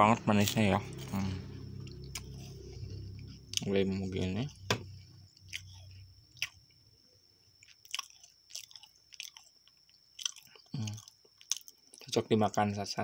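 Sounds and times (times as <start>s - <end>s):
crunchy snack being chewed: 0.3s - 3.8s, 5.3s - 6.6s, 7.6s - 12.6s.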